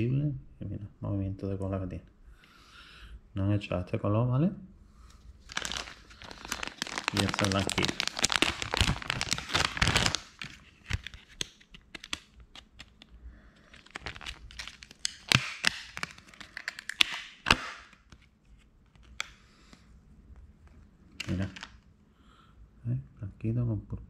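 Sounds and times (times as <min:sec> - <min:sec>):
plastic packaging crinkling: 0:05.4 - 0:18.3, 0:21.2 - 0:21.8.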